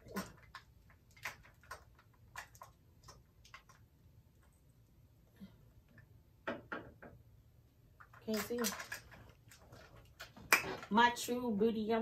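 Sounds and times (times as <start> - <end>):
plastic tubes clicking: 8.0 - 10.9.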